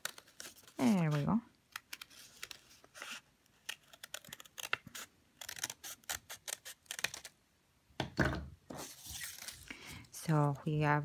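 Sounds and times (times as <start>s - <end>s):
scissors snipping paper: 3.6s - 7.3s.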